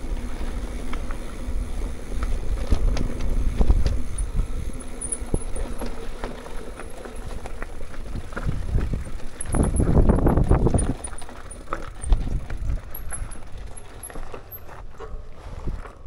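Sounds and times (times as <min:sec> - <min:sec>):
bike rattling over bumps: 0:00.0 - 0:16.0
wind buffeting microphone: 0:08.0 - 0:11.2.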